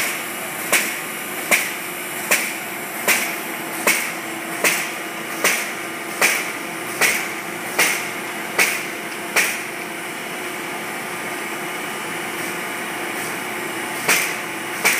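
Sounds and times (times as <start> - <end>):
sharp repeating knock: 3.1 - 9.7.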